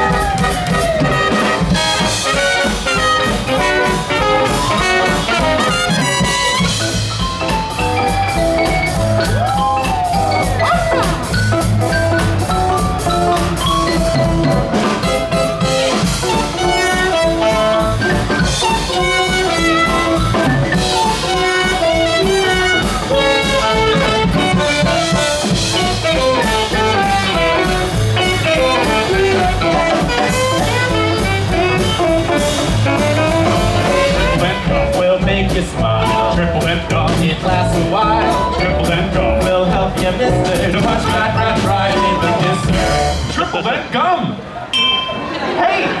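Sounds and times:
brass band playing jazzy tune: 0.0 - 44.6.

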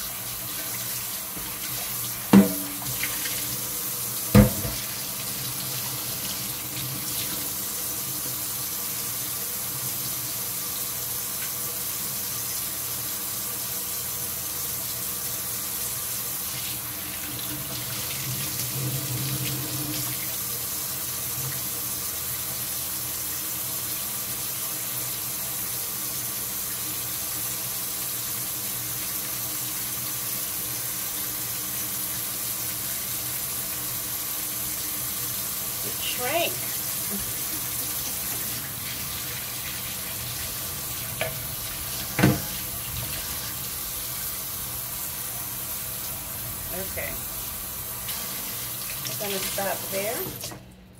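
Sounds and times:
water splashing over colander: 0.0 - 8.4, 34.7 - 44.8
faucet running into metal sink: 0.0 - 12.6, 15.8 - 23.6, 24.3 - 50.6.

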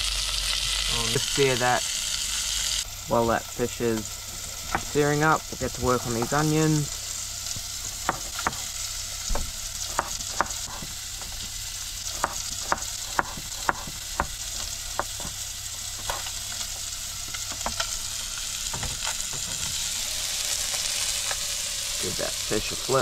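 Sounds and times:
fish sizzling in oil: 0.0 - 23.0
knife chopping on plastic board: 8.0 - 8.7, 9.3 - 11.5, 12.1 - 15.4.

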